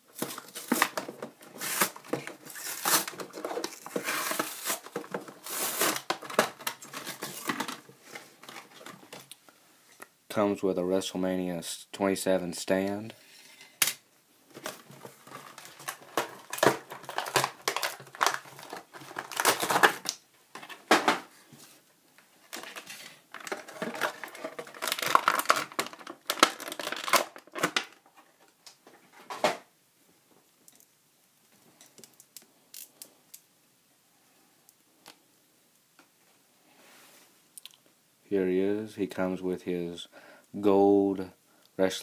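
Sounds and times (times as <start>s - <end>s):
plastic packaging crinkling: 0.1s - 9.4s, 14.5s - 20.8s, 22.5s - 28.1s.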